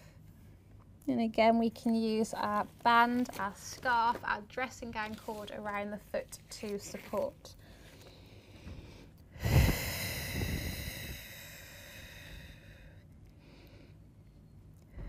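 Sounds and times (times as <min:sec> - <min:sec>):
person breathing out: 0:07.7 - 0:14.0.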